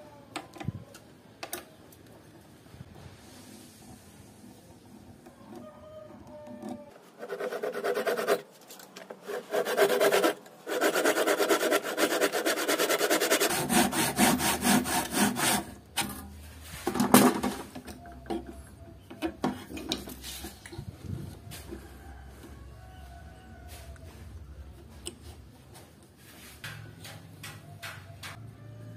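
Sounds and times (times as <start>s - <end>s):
hand saw cutting wood: 7.2s - 8.4s, 9.2s - 15.8s.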